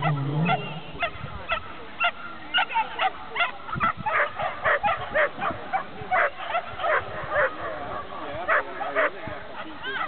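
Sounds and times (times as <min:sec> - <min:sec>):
dog barking: 0:00.0 - 0:07.7.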